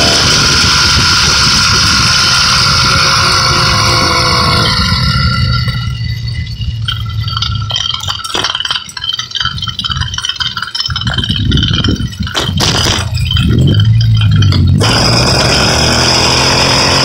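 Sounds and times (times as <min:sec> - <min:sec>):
small engine running: 0:00.0 - 0:17.0
metallic rattling and clinking: 0:03.6 - 0:16.9.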